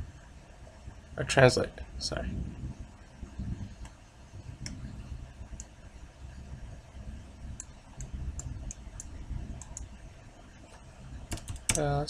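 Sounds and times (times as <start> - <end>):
low steady hum: 0.0 - 12.0
keyboard and mouse clicks: 7.6 - 9.9, 11.3 - 11.9.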